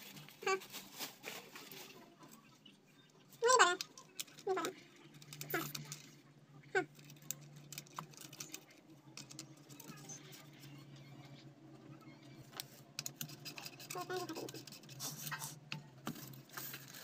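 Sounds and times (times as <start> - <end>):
small parts clicking and scraping: 3.7 - 6.2, 6.9 - 10.7, 12.5 - 17.0.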